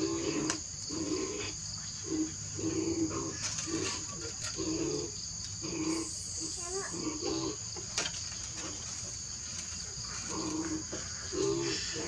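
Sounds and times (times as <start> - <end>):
low animal coo: 0.0 - 6.2
insects droning: 0.0 - 12.0.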